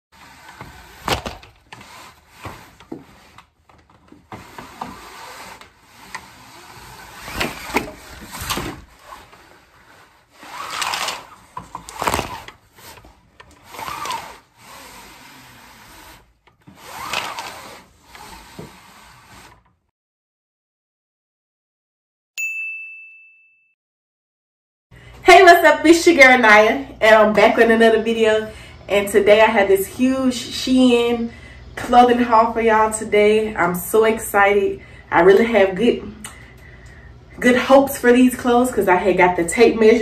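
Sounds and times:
rustling and scraping of handling: 0.2s - 14.4s.

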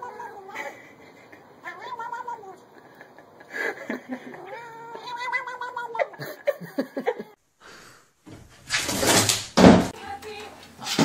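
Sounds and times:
cat meowing: 0.0s - 0.6s, 1.5s - 2.8s, 4.2s - 6.2s.

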